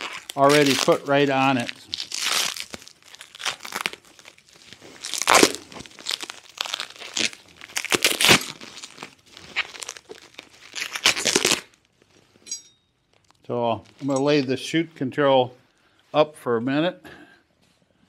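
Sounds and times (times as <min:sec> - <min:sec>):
bubble wrap crinkling: 0:00.0 - 0:12.4, 0:13.1 - 0:14.5.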